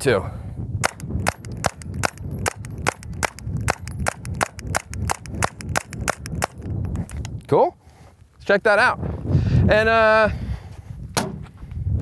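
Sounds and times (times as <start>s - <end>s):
pistol shots: 0.8s - 6.6s.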